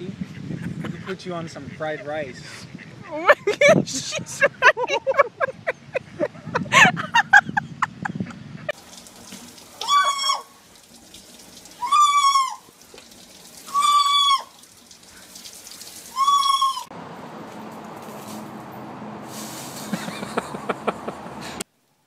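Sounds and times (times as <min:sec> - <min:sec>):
macaw calling: 0:13.7 - 0:15.3, 0:16.1 - 0:16.9.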